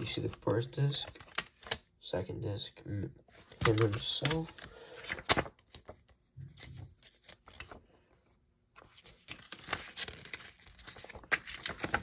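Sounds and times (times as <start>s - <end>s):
paper rustling: 3.3s - 7.9s, 8.7s - 12.0s.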